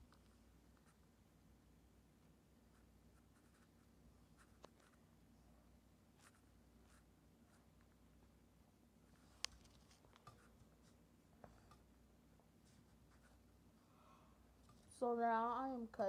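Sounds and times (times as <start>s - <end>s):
soft clicks and scratches: 0.0s - 1.2s, 2.7s - 5.1s, 6.1s - 8.4s, 9.0s - 13.6s, 14.6s - 15.0s.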